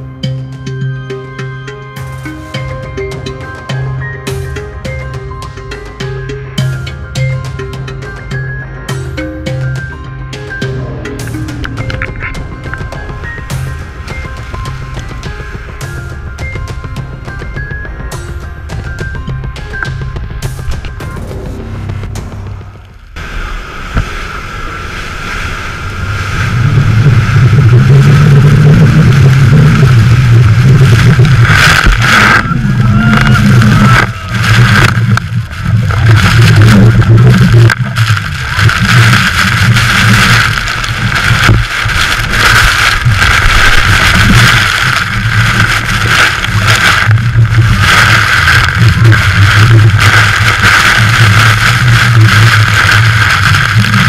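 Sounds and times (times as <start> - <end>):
boat engine droning: 0.0 - 54.0
wind on microphone: 10.6 - 19.6, 20.3 - 54.0
water spray rushing: 23.2 - 54.0.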